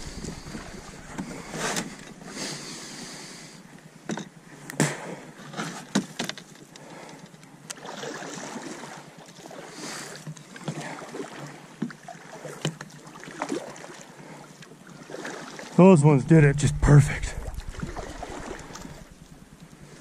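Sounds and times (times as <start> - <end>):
paddle splashing in water: 7.8 - 15.8, 17.4 - 19.2.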